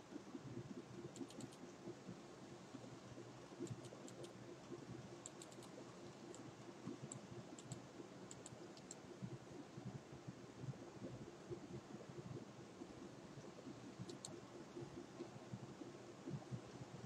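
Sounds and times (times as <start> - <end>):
low steady hum: 0.0 - 17.0
light computer clicks: 1.1 - 1.7, 3.6 - 9.0, 14.0 - 14.4.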